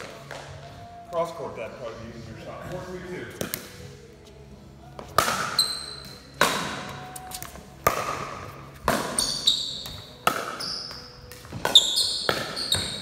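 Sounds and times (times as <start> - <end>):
paddle hitting plastic ball: 6.4 - 9.2.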